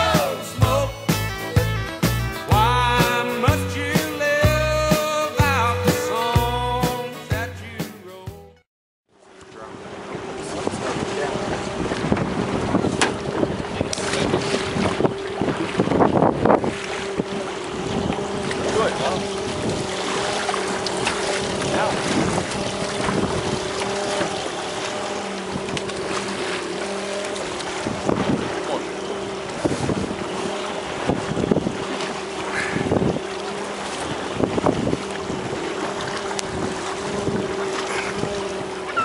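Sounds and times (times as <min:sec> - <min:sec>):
rushing water: 0:00.0 - 0:07.3, 0:09.1 - 0:39.0
boat engine humming: 0:00.0 - 0:39.0
wind buffeting microphone: 0:10.1 - 0:26.5, 0:27.4 - 0:39.0.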